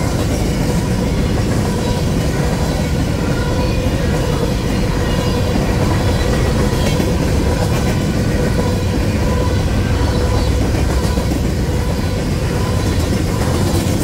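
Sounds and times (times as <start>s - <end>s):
steel wheels rumbling on rail: 0.0s - 14.0s.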